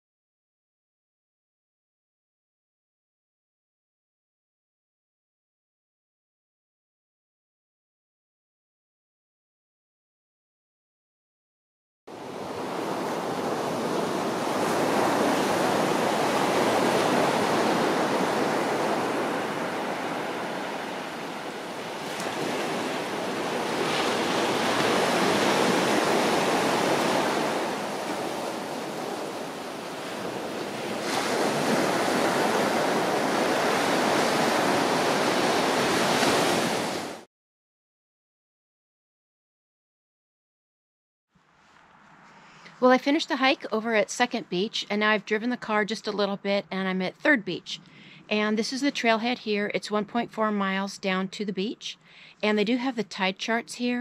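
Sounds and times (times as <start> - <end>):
waves breaking on beach: 12.1 - 37.3.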